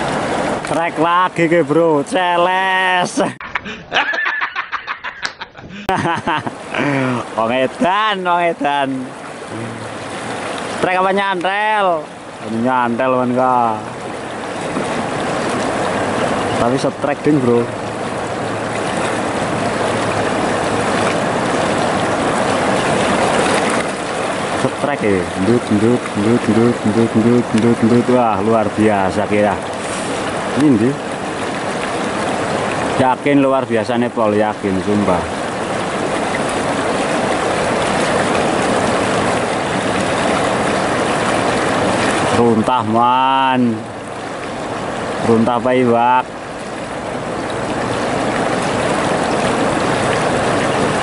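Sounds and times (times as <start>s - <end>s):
river water flowing over rocks: 0.0s - 51.0s.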